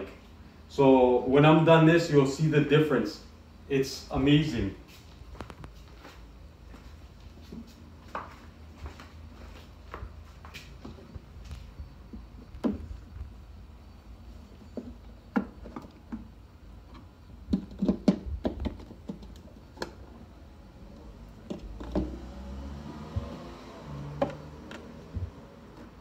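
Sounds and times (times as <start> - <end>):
low steady hum: 0.0 - 26.0.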